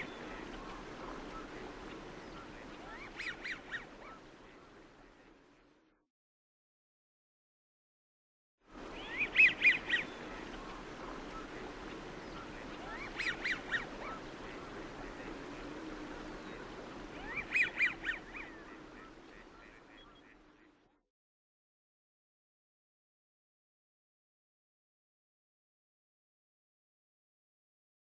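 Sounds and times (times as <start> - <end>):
low murmur of flock: 0.0 - 5.9, 8.8 - 21.0.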